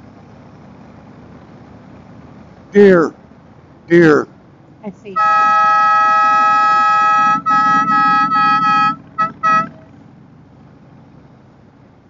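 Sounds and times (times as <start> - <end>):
motorcycle horn honking: 5.2 - 9.9.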